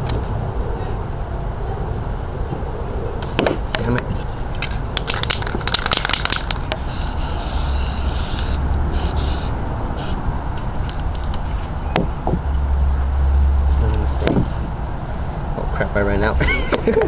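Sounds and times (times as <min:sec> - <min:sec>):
quick clicks: 0:05.0 - 0:06.8
aerosol spray can hissing: 0:06.3 - 0:10.2.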